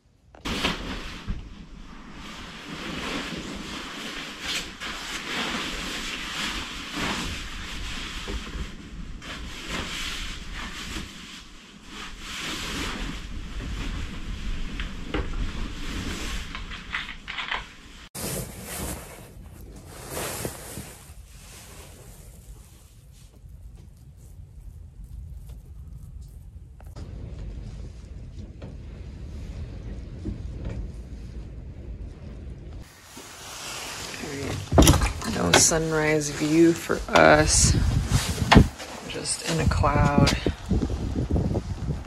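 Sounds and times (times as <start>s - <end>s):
strong wind buffeting microphone: 18.7s - 42.0s.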